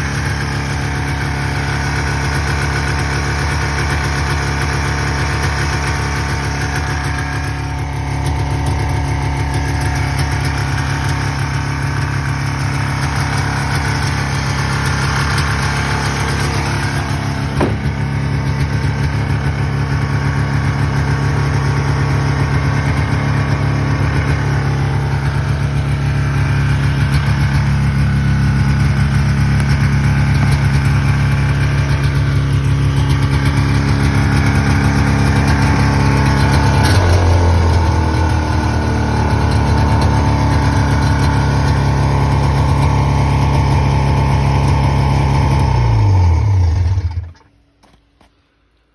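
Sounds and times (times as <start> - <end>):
snowmobile engine idling: 0.0 - 48.9.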